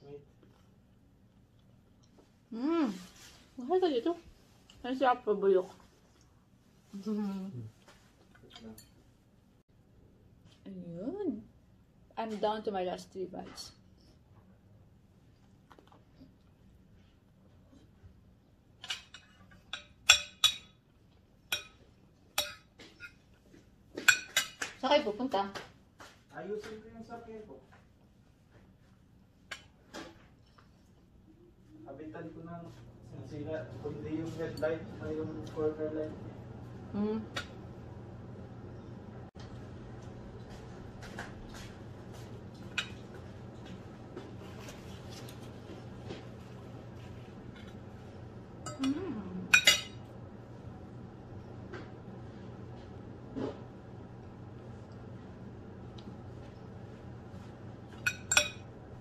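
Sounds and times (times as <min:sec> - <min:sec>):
steady low hum: 0:00.0 - 0:59.0
fork and spoon clinking on plate: 0:48.7 - 0:50.0, 0:58.0 - 0:58.7.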